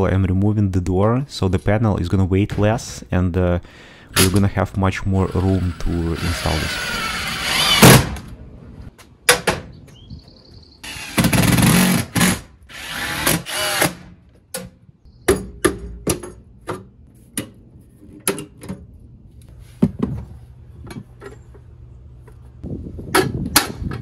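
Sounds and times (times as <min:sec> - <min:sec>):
cordless drill driving screws: 0:05.3 - 0:08.0, 0:10.9 - 0:14.0.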